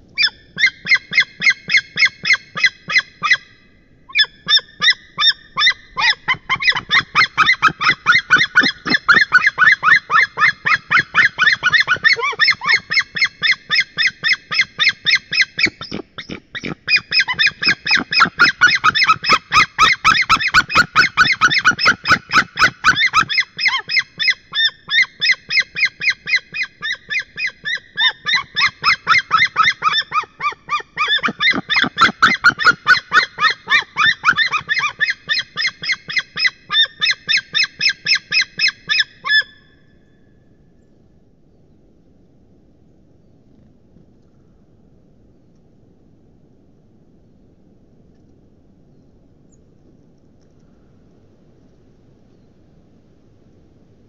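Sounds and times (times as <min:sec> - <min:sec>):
eagles calling rapidly: 0:00.2 - 0:03.5, 0:04.1 - 0:39.6.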